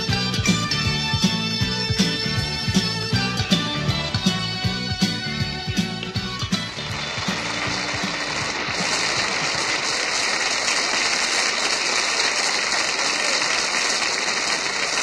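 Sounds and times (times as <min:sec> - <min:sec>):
song music: 0:00.0 - 0:09.5
audience applauding: 0:03.2 - 0:15.0.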